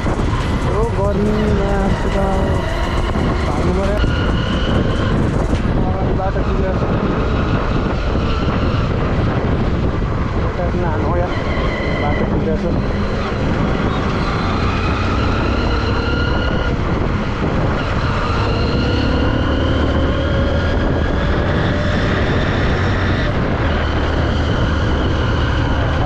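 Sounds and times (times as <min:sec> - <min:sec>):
motorcycle engine running: 0:00.0 - 0:08.2
wind on microphone: 0:00.0 - 0:26.0.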